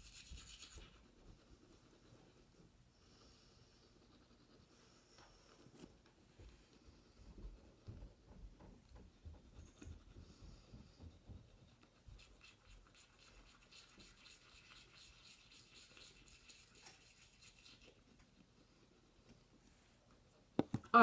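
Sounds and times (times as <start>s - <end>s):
toothbrush scrubbing teeth: 0.0s - 1.2s, 11.4s - 18.5s.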